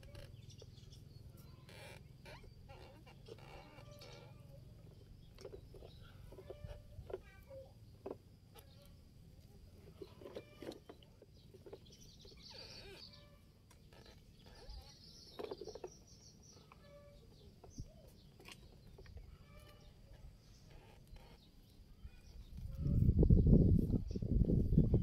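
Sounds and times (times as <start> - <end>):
low steady background noise: 0.0 - 24.9
bird chirps: 10.0 - 22.9.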